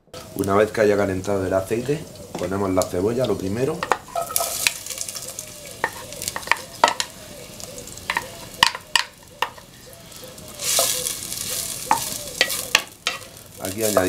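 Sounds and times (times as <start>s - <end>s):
onion sizzling in oil: 0.1s - 14.0s
wooden spoon knocking on clay bowl: 5.8s - 7.1s.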